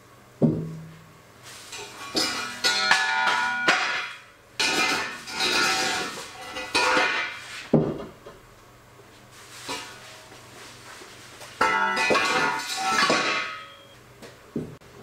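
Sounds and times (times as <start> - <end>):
steel ringing: 11.6 - 14.0.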